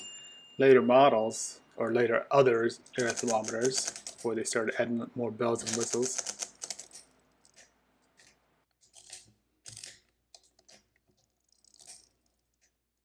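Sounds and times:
mechanical calculator gears clicking: 2.9 - 4.3, 5.6 - 7.6.

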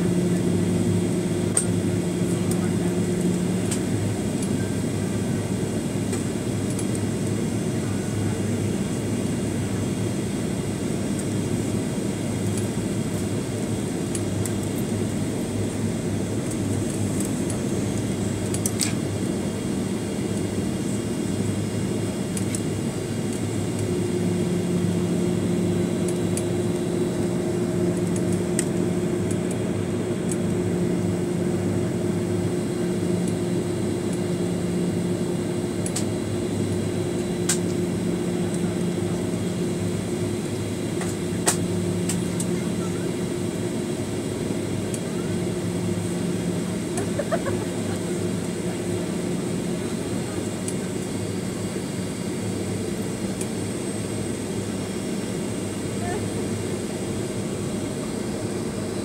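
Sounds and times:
airplane cabin roar: 0.0 - 59.0.

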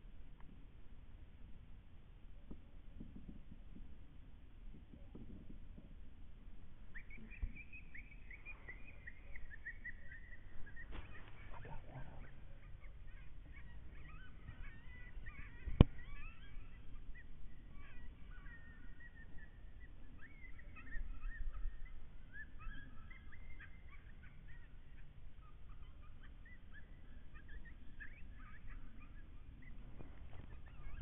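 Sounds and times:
chorus of high animal calls: 7.0 - 31.0.

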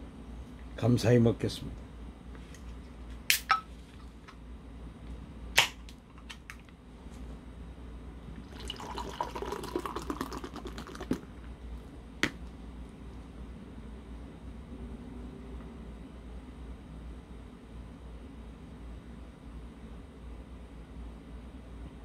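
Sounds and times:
can cracked open: 3.3 - 3.6
beer pouring and fizzing: 8.4 - 11.4.

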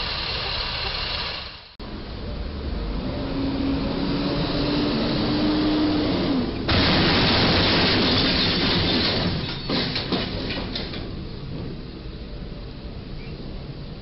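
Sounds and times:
vehicle engine hum: 0.0 - 7.2
traffic noise: 0.0 - 14.0
loud crash: 6.7 - 11.0.

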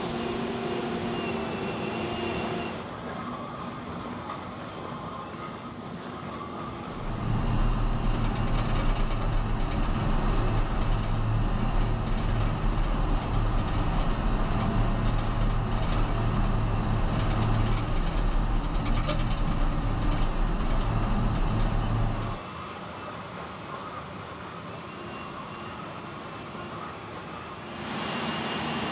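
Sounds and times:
diesel engine under load: 0.0 - 3.6, 6.7 - 22.4.

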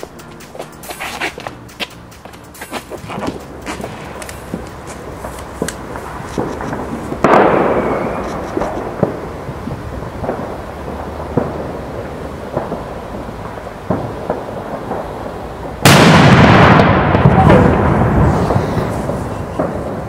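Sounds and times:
firecracker crackles and pops: 0.0 - 20.0
loud burst with rumble: 5.9 - 20.0
very loud bang: 7.2 - 9.2, 15.9 - 19.9.

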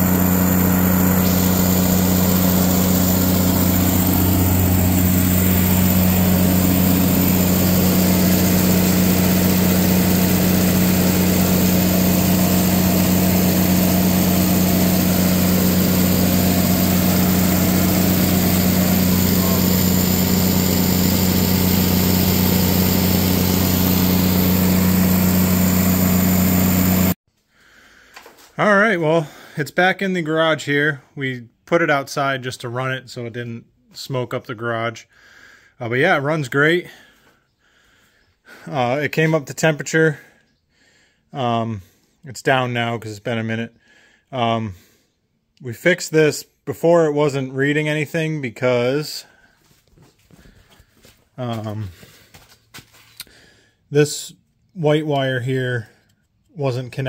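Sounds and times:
generator engine running: 0.0 - 27.2.

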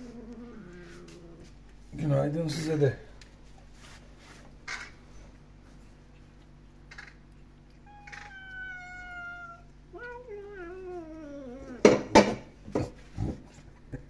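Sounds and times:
cat meowing: 7.8 - 12.1.

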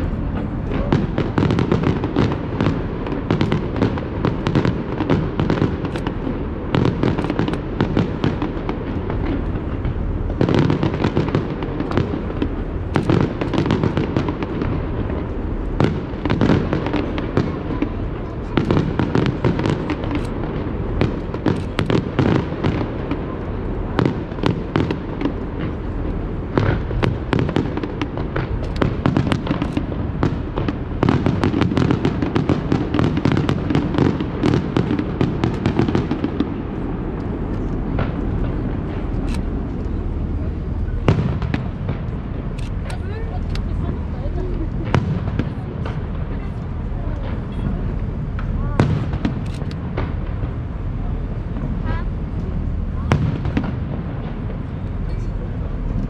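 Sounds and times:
low rumble: 0.0 - 1.4
fireworks bangs and crackles: 0.0 - 56.0.

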